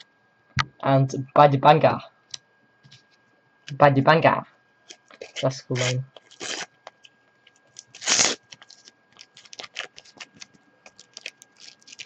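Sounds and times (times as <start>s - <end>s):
foil packet ripping: 4.9s - 6.8s, 7.6s - 12.0s
foil packet crinkling: 4.9s - 12.0s.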